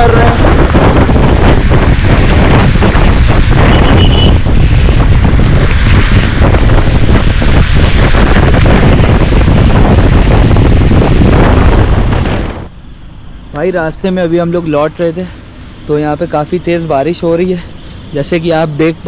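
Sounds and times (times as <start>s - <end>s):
wind buffeting microphone: 0.0s - 12.8s
motorbike road noise on wet road: 0.0s - 19.0s
short high beep: 3.8s - 4.3s.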